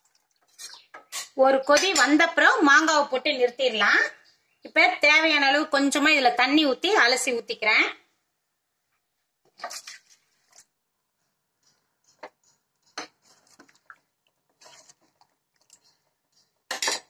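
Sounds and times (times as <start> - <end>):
ladle stirring thick stew: 0.0 - 1.4, 9.4 - 17.0
ladle scraping metal pot: 0.2 - 2.1, 12.2 - 17.0.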